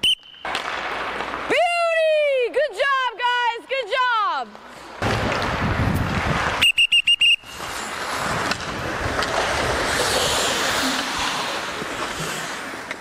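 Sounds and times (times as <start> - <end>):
whistle blasts: 0.0 - 0.5, 6.6 - 7.6
skates rushing on ice: 0.1 - 13.0.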